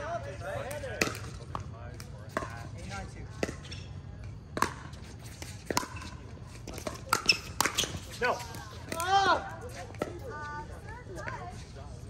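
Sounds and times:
paddles hitting plastic ball: 0:00.6 - 0:02.6, 0:05.6 - 0:09.3.

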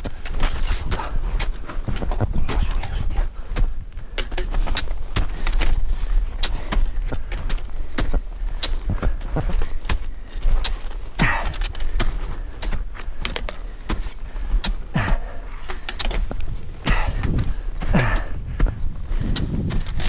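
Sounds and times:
climbing gear clinking: 0:00.0 - 0:20.0
steady low rumble: 0:00.0 - 0:20.0
heavy exhalations: 0:00.1 - 0:20.0.

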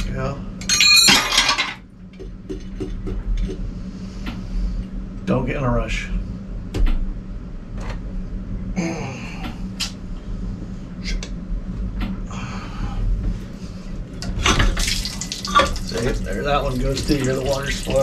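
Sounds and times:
steady low hum: 0:00.0 - 0:18.0
water splashing and trickling: 0:14.4 - 0:18.0.

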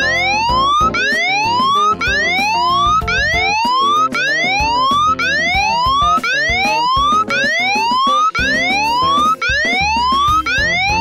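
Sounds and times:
music: 0:00.0 - 0:11.0
phone alarm siren whooping: 0:00.0 - 0:11.0.

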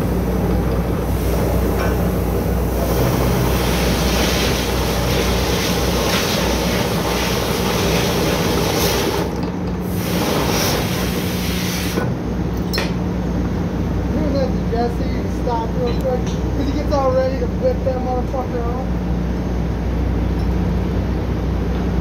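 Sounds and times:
broad rushing noise: 0:00.0 - 0:12.3.

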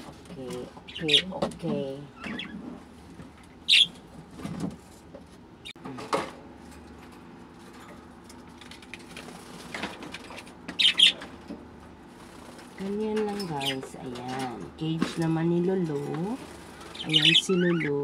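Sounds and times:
birds chirping: 0:00.0 - 0:02.8, 0:03.5 - 0:04.0, 0:10.2 - 0:11.5, 0:12.1 - 0:18.0.

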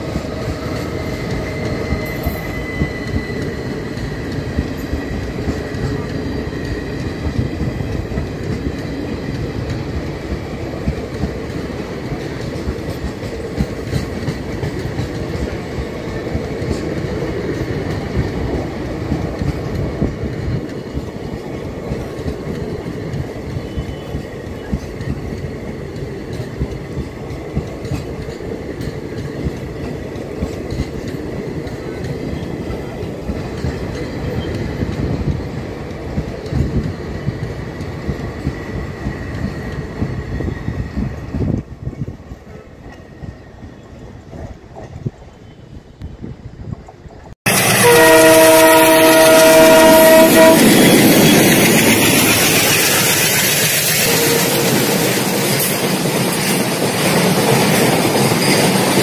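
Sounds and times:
train wheels rumbling on rail: 0:00.0 - 0:59.0
wheels clickety-clack over rail joints: 0:00.0 - 0:59.0
faint high wheel squeal: 0:00.8 - 0:04.2, 0:23.5 - 0:25.0.

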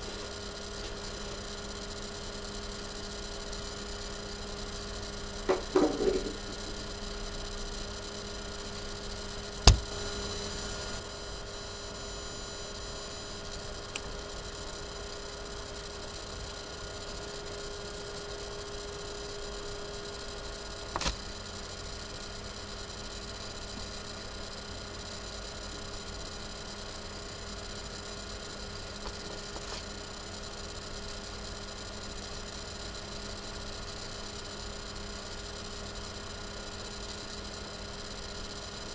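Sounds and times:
electrical hum: 0:00.0 - 0:31.5
sharp knock: 0:05.5 - 0:06.4, 0:09.7 - 0:09.9.

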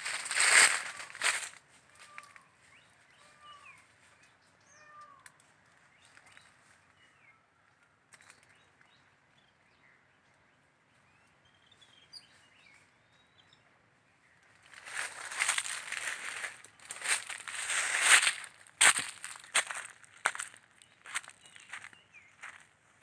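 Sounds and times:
footsteps crunching dry leaves: 0:00.0 - 0:02.5, 0:14.6 - 0:22.7
faint bird chirps: 0:01.9 - 0:10.4, 0:20.5 - 0:22.6.

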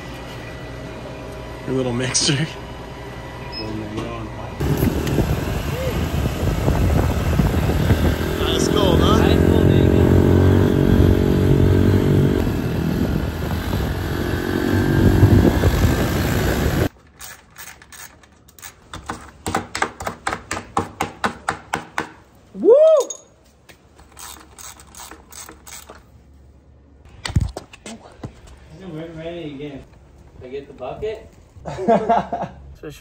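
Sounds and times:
motorcycle engine running: 0:04.6 - 0:16.9.

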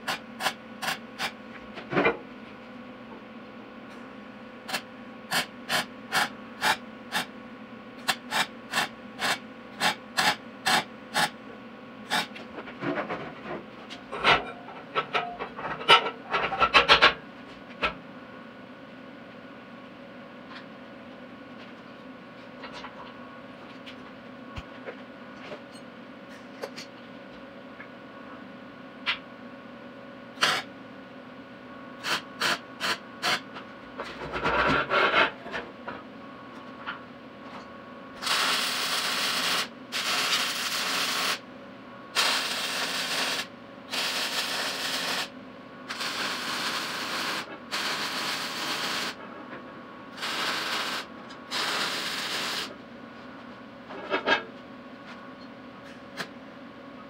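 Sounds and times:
mig welding: 0:00.0 - 0:01.4, 0:04.7 - 0:07.3, 0:08.0 - 0:11.4, 0:12.1 - 0:12.3, 0:30.4 - 0:30.7, 0:32.0 - 0:33.4, 0:38.2 - 0:41.4, 0:42.2 - 0:45.3, 0:45.9 - 0:49.2, 0:50.2 - 0:52.7
machine hum: 0:17.2 - 0:57.0.

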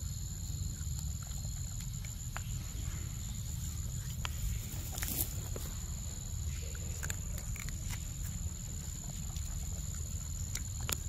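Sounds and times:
monkey chewing clicks: 0:00.5 - 0:02.7, 0:06.5 - 0:11.0
short rustle: 0:03.6 - 0:06.0.

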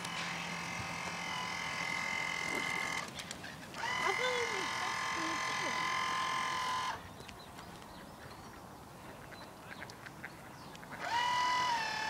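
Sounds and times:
electric motor whining: 0:00.0 - 0:07.1, 0:11.0 - 0:12.0
faint bird calls: 0:03.1 - 0:04.9, 0:06.8 - 0:11.2.

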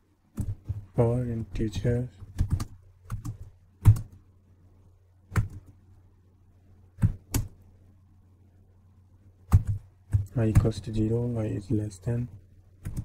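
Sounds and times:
faint low hum: 0:00.0 - 0:13.0
keyboard keystrokes: 0:02.2 - 0:04.2, 0:05.3 - 0:05.7, 0:07.0 - 0:07.6, 0:09.5 - 0:10.8, 0:12.8 - 0:13.0.

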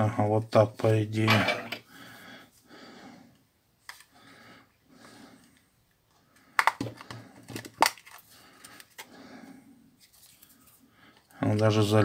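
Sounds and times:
plastic phone cover clicks and snaps: 0:06.6 - 0:08.2.

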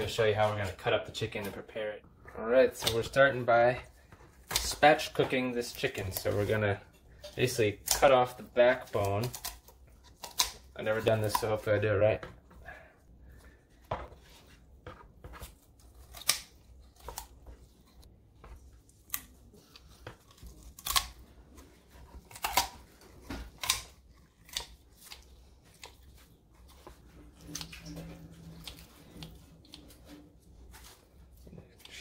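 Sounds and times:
kitchen shears snipping through bone: 0:09.0 - 0:11.6, 0:15.8 - 0:17.4, 0:19.1 - 0:21.2, 0:23.5 - 0:26.0.

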